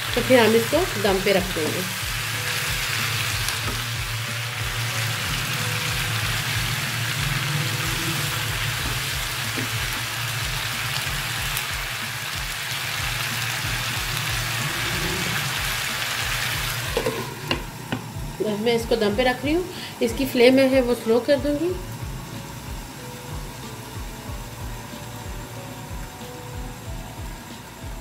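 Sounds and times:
soft background music: 0.0s - 28.0s
vegetables sizzling in frying pan: 0.0s - 28.0s.

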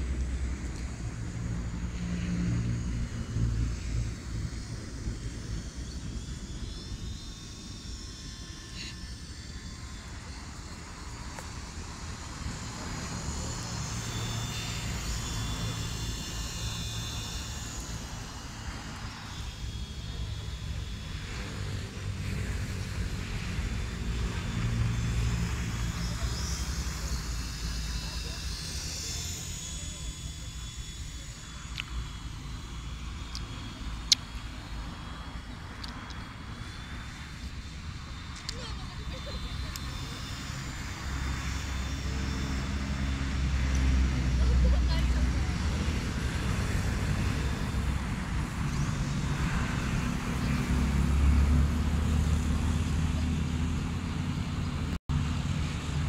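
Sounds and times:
toy helicopter rotor whine: 0.0s - 56.0s.

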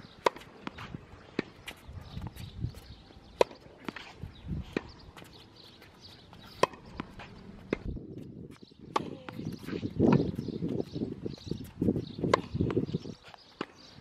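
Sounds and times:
tennis ball struck by racket: 0.2s - 2.8s, 3.4s - 5.4s, 6.4s - 8.0s, 8.9s - 10.9s, 12.2s - 13.0s.

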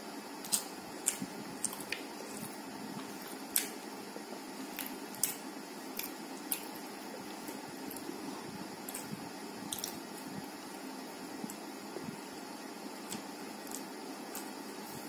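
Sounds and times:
steady background hum: 0.0s - 15.0s
wet clicks and squishes of food: 0.4s - 3.8s, 4.7s - 8.1s, 9.7s - 10.0s, 13.0s - 14.6s.

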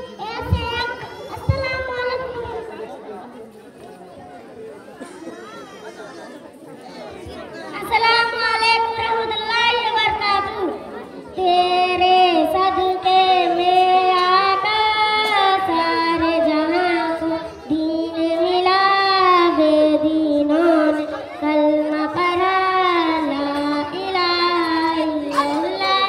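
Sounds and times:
girl singing into a microphone: 0.1s - 2.6s, 7.8s - 26.0s.

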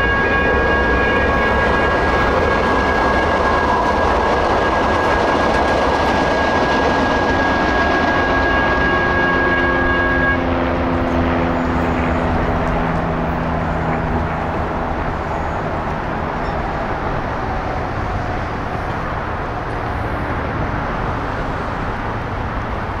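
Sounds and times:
steady ringing tone: 0.0s - 17.6s
freeway traffic: 0.0s - 23.0s.

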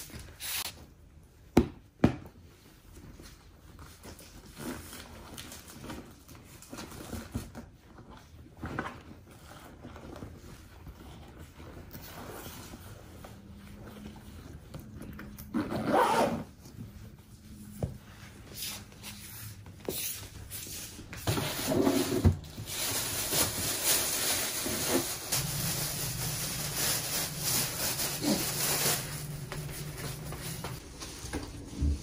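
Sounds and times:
plastic bag rustling: 20.4s - 32.0s.

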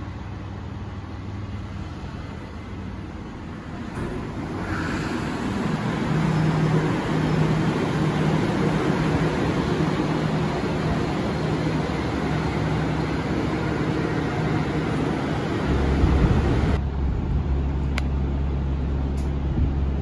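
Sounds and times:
monorail train rumble and hiss: 0.0s - 20.0s
deep hum: 15.6s - 20.0s.

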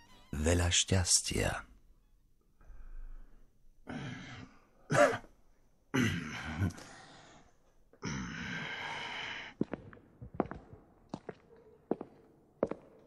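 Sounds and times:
person clearing throat and coughing: 3.9s - 6.8s.

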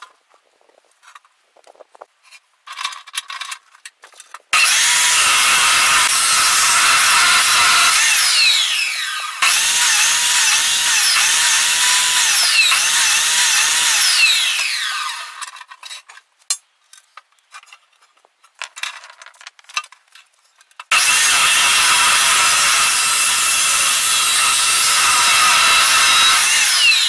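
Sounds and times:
abrasive saw grinding through metal: 4.6s - 15.4s, 20.9s - 27.0s.

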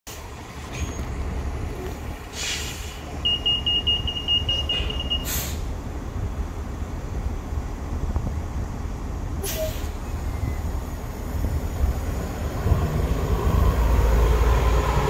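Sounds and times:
diesel bus engine rumbling: 0.1s - 15.0s
air release hisses: 2.3s - 3.1s, 5.2s - 5.7s.

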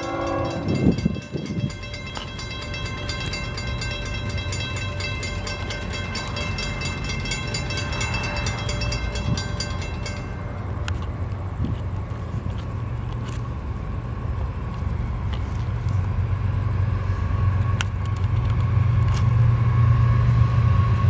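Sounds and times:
railroad crossing bell ringing: 0.0s - 11.6s
low rumble of train: 0.0s - 21.0s.

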